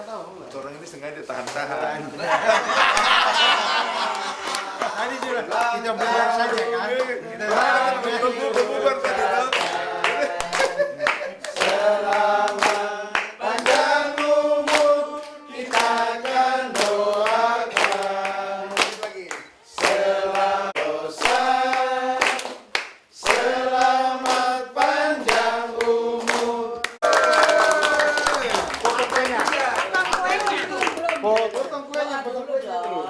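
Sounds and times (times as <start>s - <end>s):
group singing: 2.4s - 27.1s
people clapping in time: 2.8s - 32.2s.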